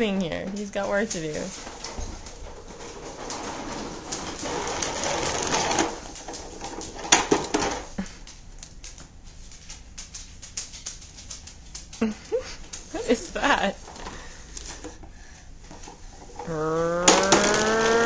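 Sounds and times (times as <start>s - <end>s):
toy truck rolling on floor: 0.6s - 8.0s, 12.9s - 18.0s
toddler cooing: 16.4s - 17.2s.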